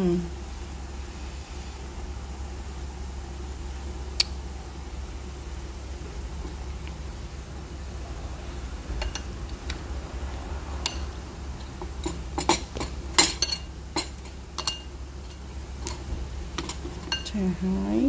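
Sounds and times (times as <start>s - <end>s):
metal tongs clinking on bowl and pot: 9.0s - 9.3s, 10.8s - 16.0s, 16.6s - 17.4s.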